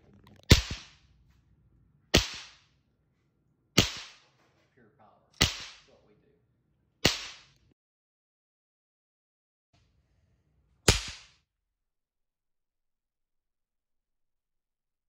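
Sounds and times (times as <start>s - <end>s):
sharp electric cracks: 0.4s - 1.0s, 2.2s - 2.7s.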